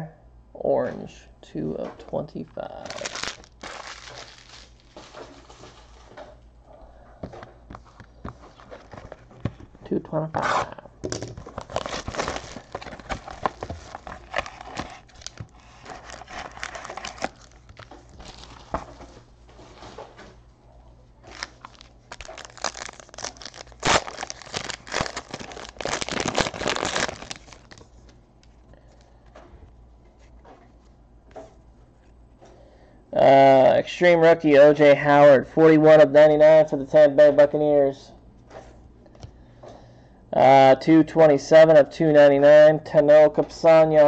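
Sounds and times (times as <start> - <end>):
foil wrapper crinkling and tearing: 2.8 - 6.0, 11.4 - 18.8, 21.2 - 28.0
cards being handled: 2.8 - 6.3, 11.4 - 20.3, 21.2 - 28.6.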